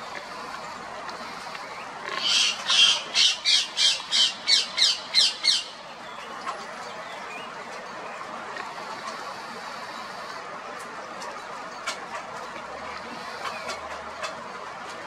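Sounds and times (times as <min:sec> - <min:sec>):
parakeet harsh squawks: 0:02.1 - 0:05.7.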